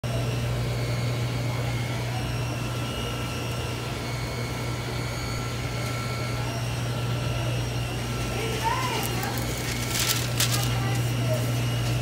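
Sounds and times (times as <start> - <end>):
kitchen equipment humming: 0.0 - 12.0.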